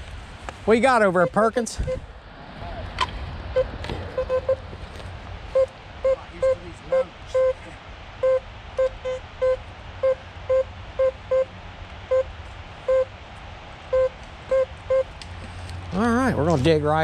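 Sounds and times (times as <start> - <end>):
metal detector beeps: 1.2 - 2.0, 3.6 - 4.6, 5.5 - 7.6, 8.2 - 11.5, 12.9 - 13.1, 13.9 - 15.1.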